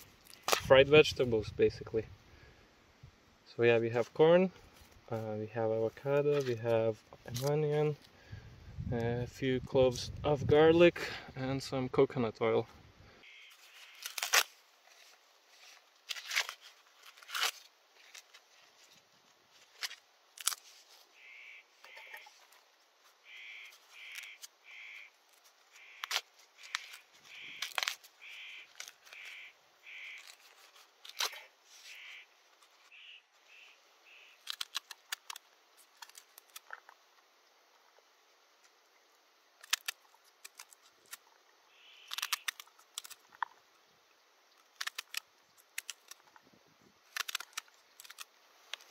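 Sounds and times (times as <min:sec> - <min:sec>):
corn husks tearing and snapping: 0:00.2 - 0:00.9, 0:07.2 - 0:08.1, 0:13.5 - 0:21.2, 0:21.8 - 0:32.9, 0:34.2 - 0:37.2, 0:39.6 - 0:43.6, 0:44.4 - 0:48.9
bird calling in short notes: 0:25.8 - 0:30.4, 0:31.9 - 0:32.3.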